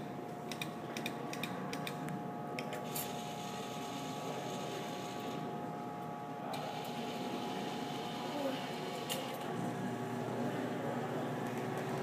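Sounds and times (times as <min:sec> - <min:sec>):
claw crane mechanical whir: 0:06.5 - 0:12.0.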